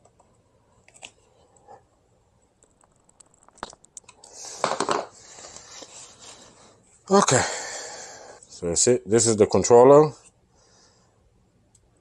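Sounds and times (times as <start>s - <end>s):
crackly rustling and scraping: 2.5s - 7.0s.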